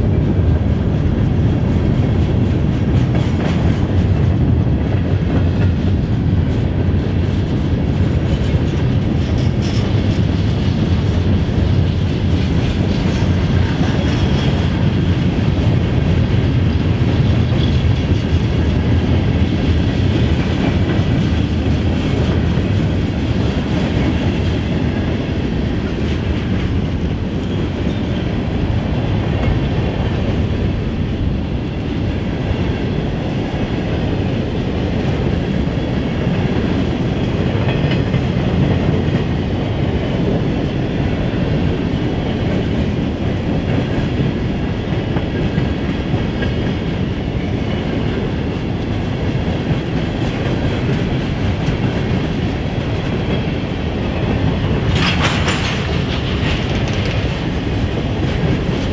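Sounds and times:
freight train wheels rumbling on rails: 0:00.0 - 0:58.9.

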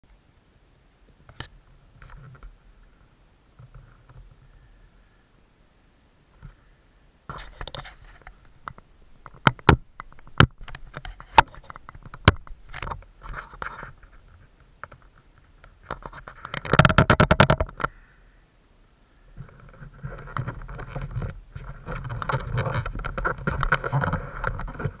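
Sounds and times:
camera mount clicks and knocks: 0:16.6 - 0:17.9.

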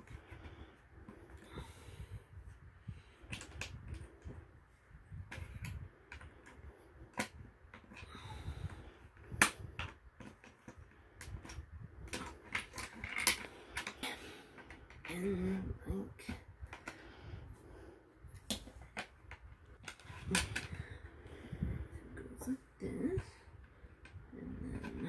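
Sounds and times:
plastic bricks clicking: 0:09.2 - 0:15.1.

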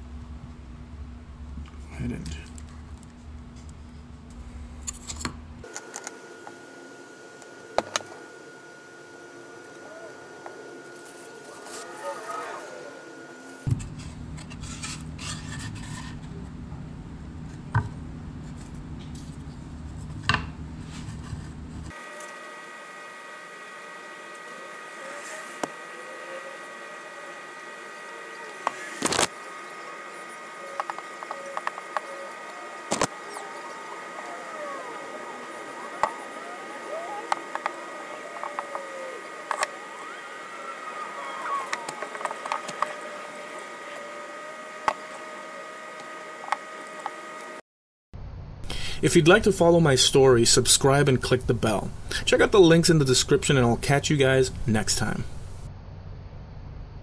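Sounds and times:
steady low hum: 0:00.0 - 0:47.6, 0:48.2 - 0:57.0
faint high whine: 0:05.6 - 0:13.7, 0:21.8 - 0:47.6.

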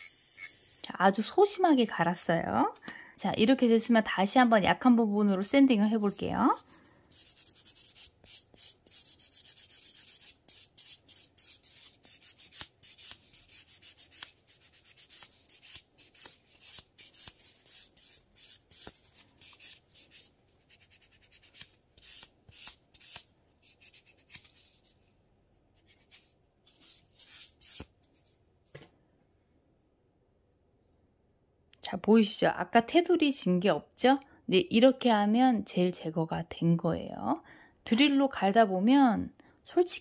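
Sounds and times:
nail file rubbing fingernail: 0:06.0 - 0:24.6.

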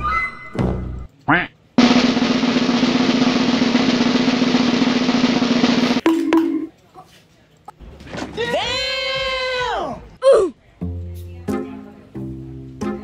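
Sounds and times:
snare drum roll: 0:01.8 - 0:06.6.

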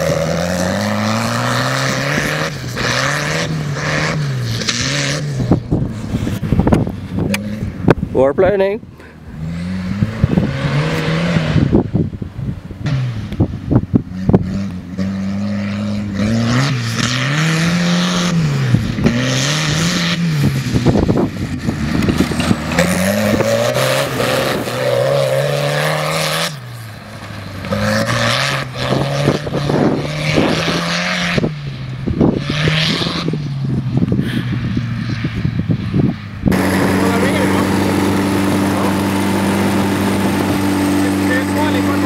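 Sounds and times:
tractor engine revving: 0:00.0 - 0:12.0, 0:12.7 - 0:34.5, 0:36.4 - 0:42.0
wind on microphone: 0:05.3 - 0:08.4, 0:09.8 - 0:14.8, 0:18.6 - 0:25.2, 0:28.8 - 0:41.2.

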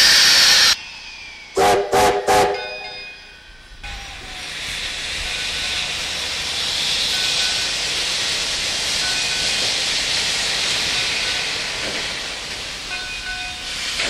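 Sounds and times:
steam jet hissing: 0:00.0 - 0:14.0.

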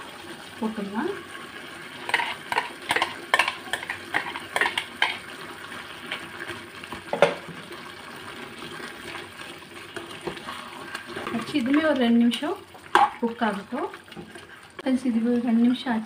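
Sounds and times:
metal spoon scraping a pot: 0:02.0 - 0:05.2
spoon knocking pot: 0:02.1 - 0:05.2, 0:07.1 - 0:07.5.

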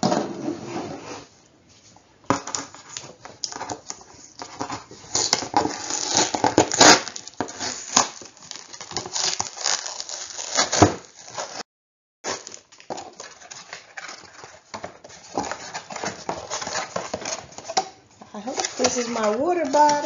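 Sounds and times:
cardboard crackling and scraping: 0:02.3 - 0:11.6, 0:12.3 - 0:20.0
tape ripping: 0:02.7 - 0:11.6.

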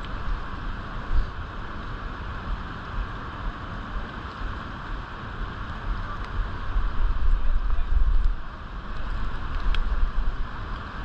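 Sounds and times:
wind buffeting microphone: 0:05.2 - 0:11.0.

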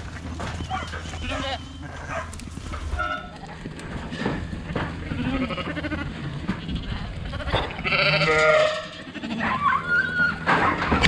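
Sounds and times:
sheep bleating: 0:05.0 - 0:10.4.

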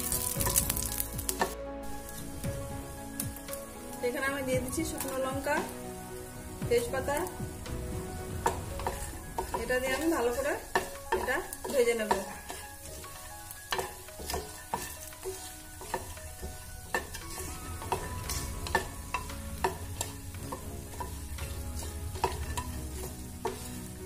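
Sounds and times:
oil sizzling in a frying pan: 0:00.0 - 0:24.0
spatula scraping the pan: 0:08.3 - 0:24.0.

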